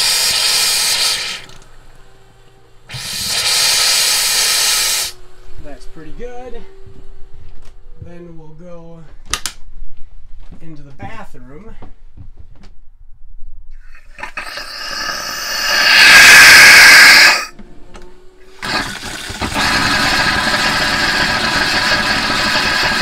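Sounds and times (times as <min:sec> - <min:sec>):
compressed air and water spitting: 0:00.0 - 0:01.6, 0:02.9 - 0:05.2, 0:13.8 - 0:17.5, 0:18.5 - 0:23.0
steady air hiss: 0:00.0 - 0:07.4, 0:13.9 - 0:17.5, 0:18.4 - 0:23.0.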